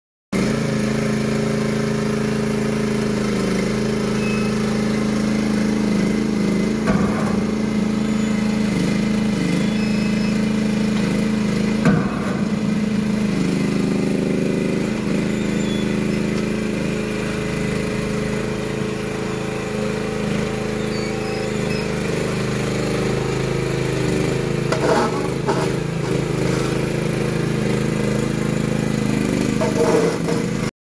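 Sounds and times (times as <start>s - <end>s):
excavator diesel engine running: 0.4s - 30.7s.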